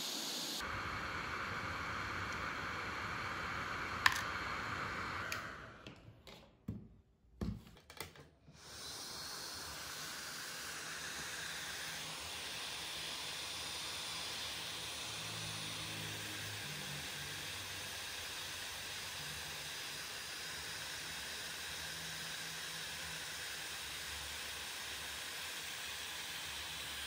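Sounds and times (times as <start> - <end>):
hot air gun hissing: 0.0 - 5.8, 8.6 - 27.0.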